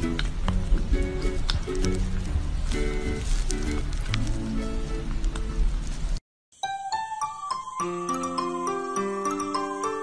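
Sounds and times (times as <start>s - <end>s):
background music: 6.6s - 10.0s
chiming tune of bell-like notes: 6.6s - 10.0s.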